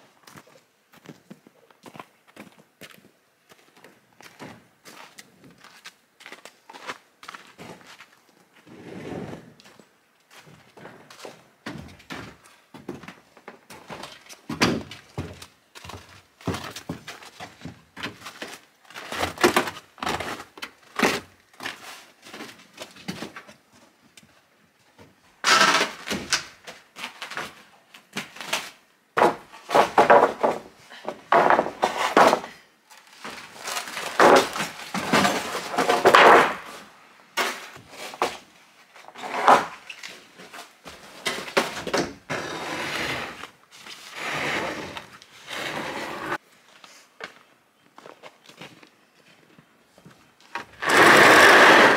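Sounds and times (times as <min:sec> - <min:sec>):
wooden boards knocking together: 0:34.2 - 0:36.7.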